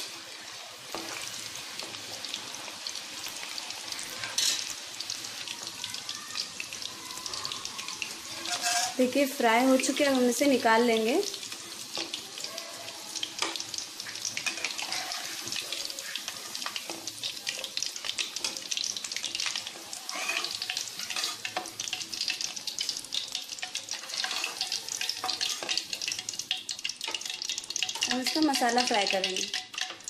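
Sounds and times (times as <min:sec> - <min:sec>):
food deep-frying in oil: 0:00.0 - 0:30.0
metal skimmer scraping pan: 0:08.4 - 0:09.0.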